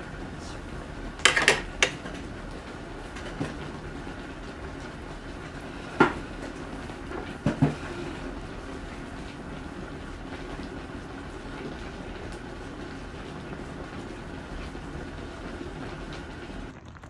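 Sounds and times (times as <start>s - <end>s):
wooden knocks and clatters: 1.2s - 2.0s.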